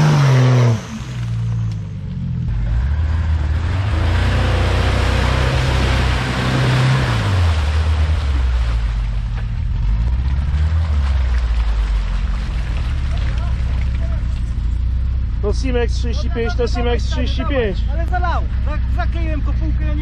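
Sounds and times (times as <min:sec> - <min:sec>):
engine revving under load: 0:00.0 - 0:14.5
mud and water splashing: 0:02.6 - 0:15.2.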